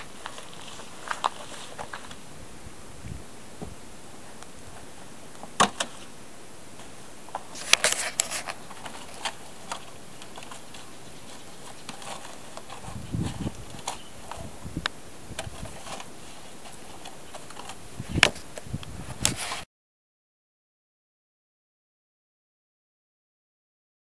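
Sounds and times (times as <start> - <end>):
soft thump: 3.0 - 3.8
cardboard box scraping on gravel: 7.5 - 14.6.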